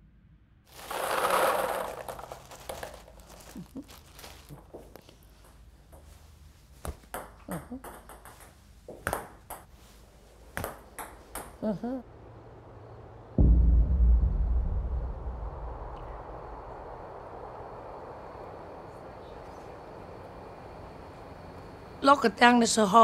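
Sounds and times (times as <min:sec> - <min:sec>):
table tennis balls clicking: 0:06.8 - 0:09.7
loud burst of noise: 0:13.2 - 0:21.0.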